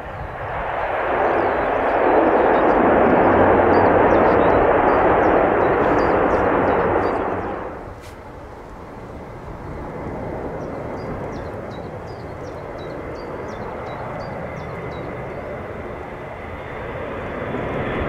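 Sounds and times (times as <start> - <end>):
loud turboprop engines: 0.0 - 18.0
turboprop aircraft drone: 0.0 - 18.0
small birds chirping: 1.3 - 8.3, 10.4 - 16.7.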